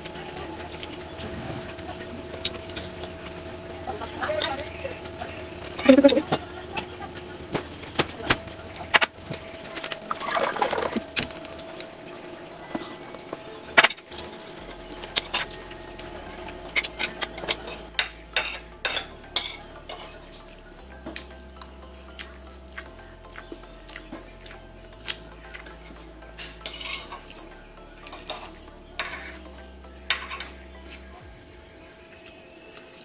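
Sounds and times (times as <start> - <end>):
cutlery clinking on a plate: 16.8 - 20.2, 26.4 - 27.4, 28.0 - 29.4, 30.1 - 30.6.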